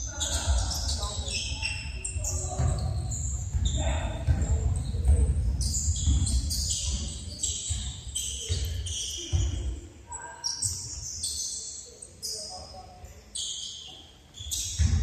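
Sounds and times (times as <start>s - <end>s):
shoes squeaking: 0.0s - 15.0s
basketball bouncing on wooden floor: 2.2s - 9.7s, 14.5s - 15.0s.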